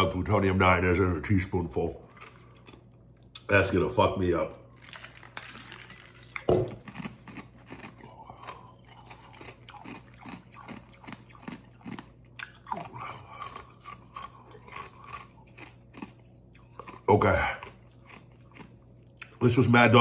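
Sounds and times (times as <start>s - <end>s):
lip smacks and chewing: 6.0s - 19.4s
faint strained hum: 12.0s - 20.0s.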